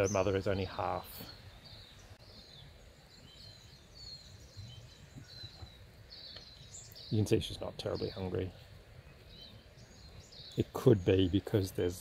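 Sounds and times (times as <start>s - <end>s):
faint birdsong chirps: 0.0s - 12.0s.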